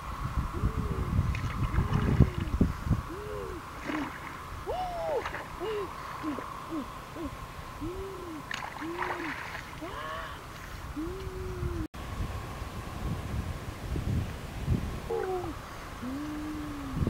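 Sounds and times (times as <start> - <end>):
faint high hum: 0.0 - 17.0
bird hooting: 2.2 - 10.4, 15.1 - 17.0.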